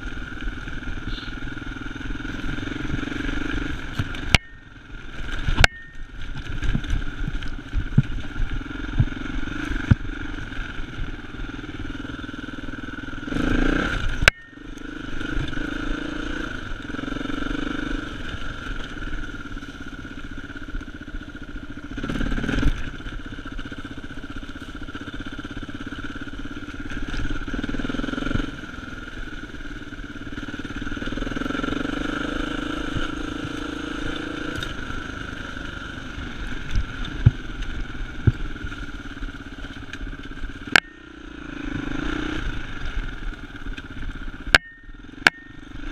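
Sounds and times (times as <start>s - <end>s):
dirt bike engine running: 0.0s - 45.9s
bike knocks and rattles: 5.3s - 10.2s.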